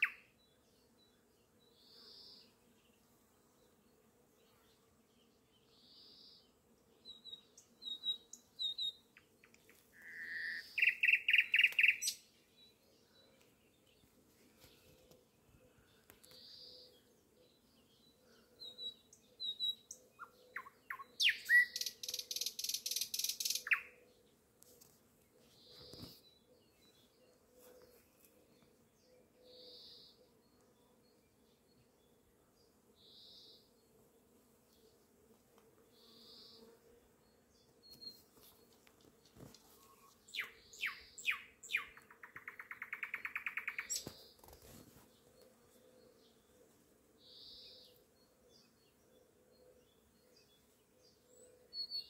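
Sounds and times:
nightingale singing: 0:00.0 - 0:00.2, 0:07.1 - 0:12.7, 0:18.6 - 0:24.0, 0:39.8 - 0:44.8.

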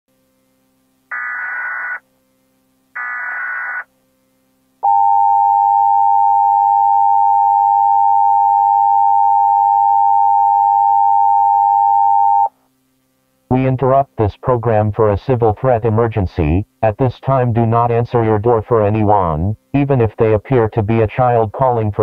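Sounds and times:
harsh data bursts: 0:01.1 - 0:02.0, 0:03.0 - 0:03.9.

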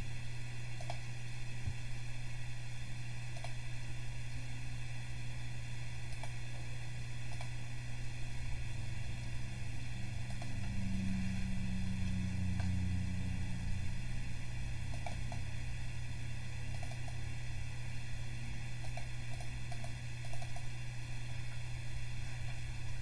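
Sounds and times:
steady low hum: 0:00.0 - 0:23.0
faint computer mouse clicks: 0:00.8 - 0:01.0, 0:03.3 - 0:03.6, 0:06.1 - 0:06.4, 0:07.3 - 0:07.6, 0:16.7 - 0:17.2, 0:18.8 - 0:20.7.

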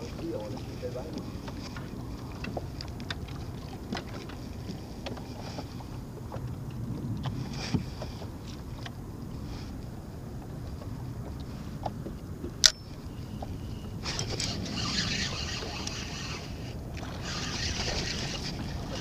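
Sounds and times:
fishing gear clicks and knocks: 0:00.0 - 0:07.8, 0:10.7 - 0:16.2
water and wind rumble: 0:00.0 - 0:19.0.

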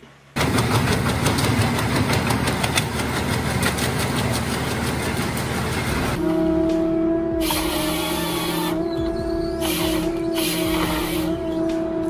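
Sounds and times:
wood chipper running: 0:00.4 - 0:08.7.

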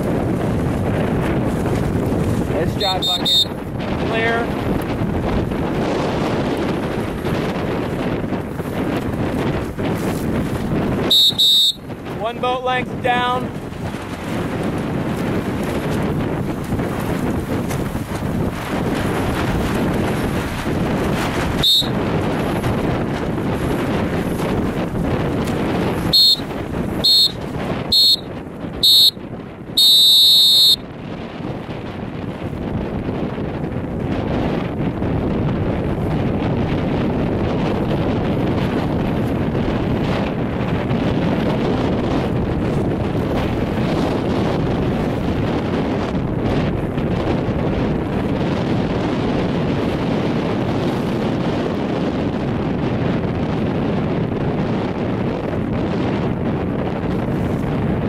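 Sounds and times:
wind rumbling on microphone: 0:00.0 - 0:58.0
long electronic beep: 0:11.1 - 0:11.8, 0:28.8 - 0:29.2.

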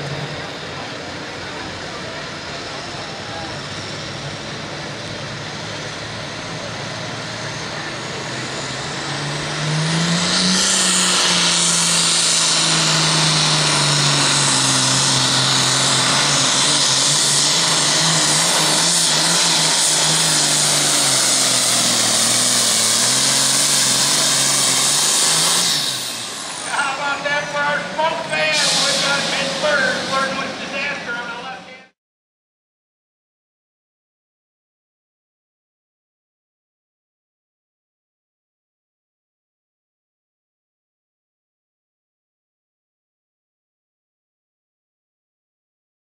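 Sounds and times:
tractor diesel engine revving: 0:00.0 - 0:31.9.

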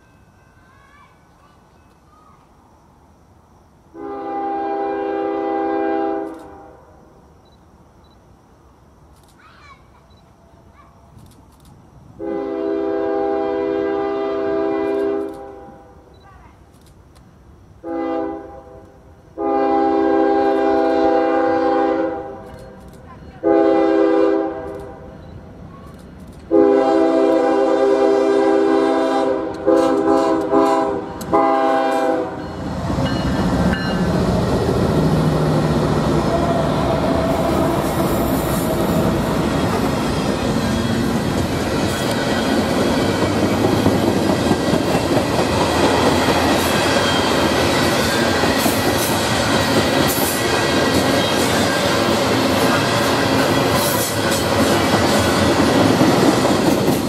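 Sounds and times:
locomotive air horn blasts: 0:04.0 - 0:06.8, 0:12.2 - 0:15.9, 0:17.8 - 0:18.8, 0:19.4 - 0:22.4, 0:23.4 - 0:25.0, 0:26.5 - 0:32.4
locomotive engine passing: 0:30.4 - 0:57.0
freight cars rolling clickety-clack: 0:36.4 - 0:57.0.

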